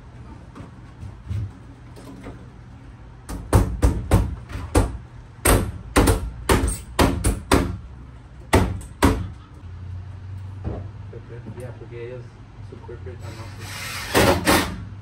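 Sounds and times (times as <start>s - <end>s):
sharp knocks on wall panel: 3.3s - 7.8s, 8.5s - 9.3s.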